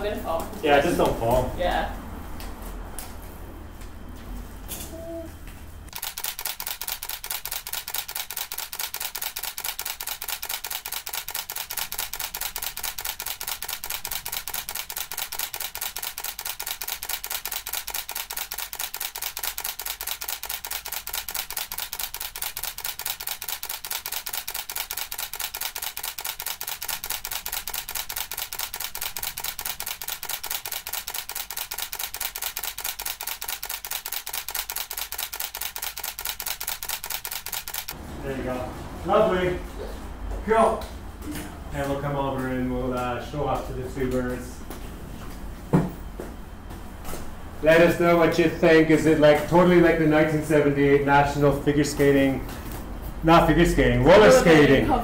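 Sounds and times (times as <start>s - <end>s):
camera shutter clicking rapidly: 5.9s - 38.0s.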